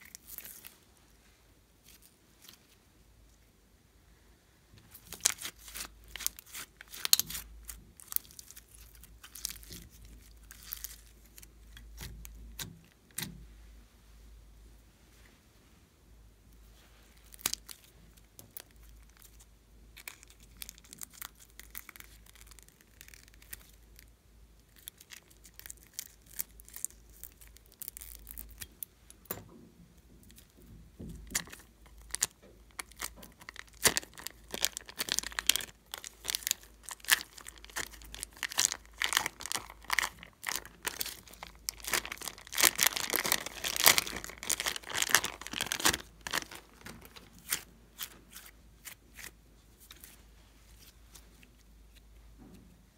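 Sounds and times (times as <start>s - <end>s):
plastic bag crinkling and tearing: 0.0s - 0.8s, 4.9s - 13.3s, 17.2s - 19.4s, 20.0s - 24.1s, 24.7s - 28.7s, 31.2s - 50.2s.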